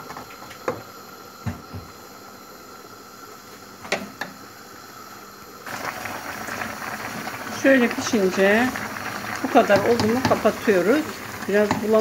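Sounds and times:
gas stove hiss: 0.0 - 12.0
wooden spoon stirring in pot: 8.7 - 12.0.

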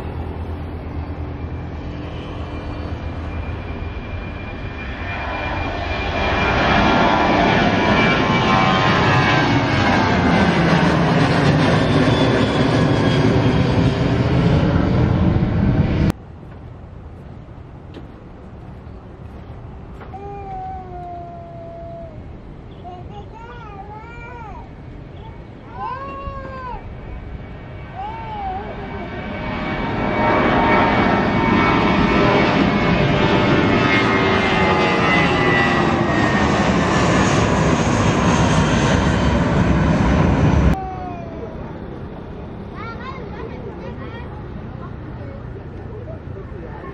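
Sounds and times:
jet engines roaring: 0.0 - 46.9
steady background noise: 16.1 - 35.0, 40.7 - 46.9.

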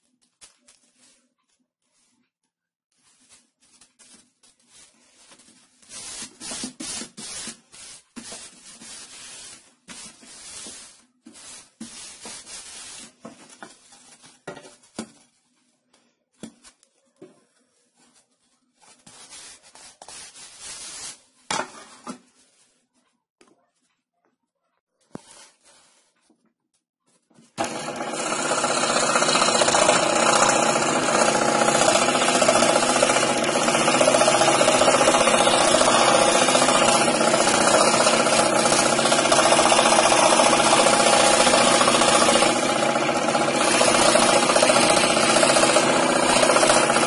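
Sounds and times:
paper swishing on wood: 2.9 - 14.4, 17.9 - 21.4, 25.0 - 26.3.

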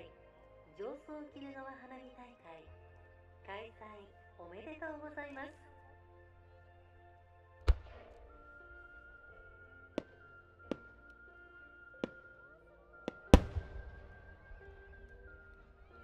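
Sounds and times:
soft background music: 0.0 - 16.0
fireworks bursting: 7.7 - 11.3, 11.9 - 16.0.

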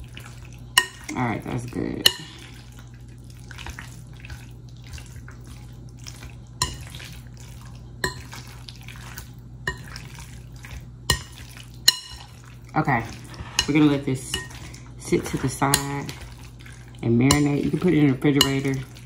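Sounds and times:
spoon stirring wet marinade: 0.0 - 19.0.

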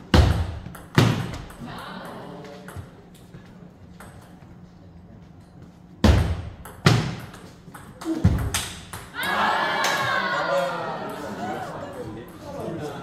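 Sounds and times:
spectators cheering and shouting: 9.2 - 12.1.

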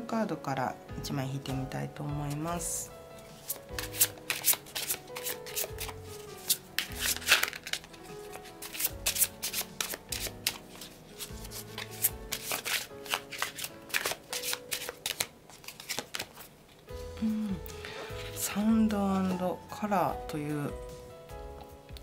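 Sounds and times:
soft background music: 0.0 - 22.0
cards being shuffled: 3.2 - 16.9.

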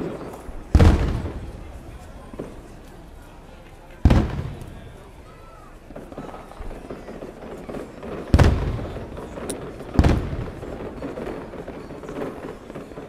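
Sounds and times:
firework shells booming: 0.0 - 13.0.

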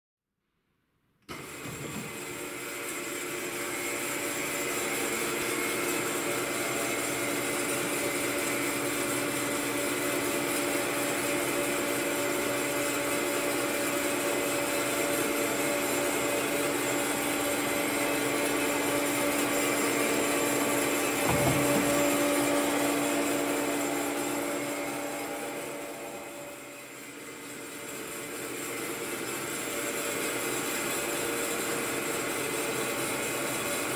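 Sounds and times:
bandsaw humming and whining: 1.3 - 33.9
single knock: 21.2 - 22.0.

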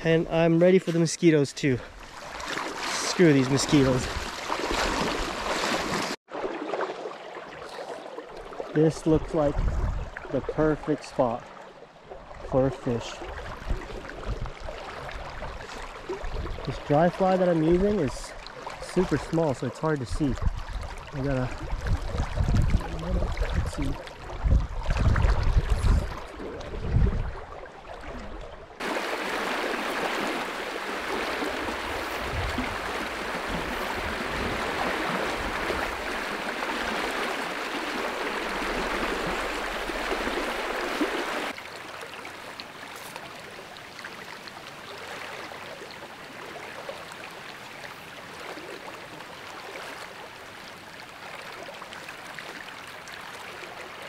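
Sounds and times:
fast-flowing river rushing: 28.8 - 41.6.

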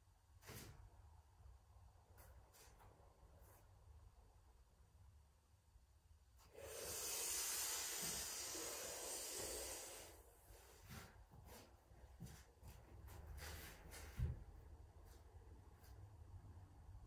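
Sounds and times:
long hissing inhale: 6.5 - 10.7.

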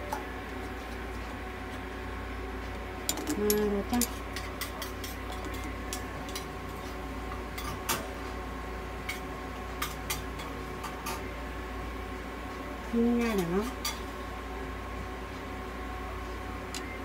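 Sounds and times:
medical equipment humming: 10.6 - 17.0.

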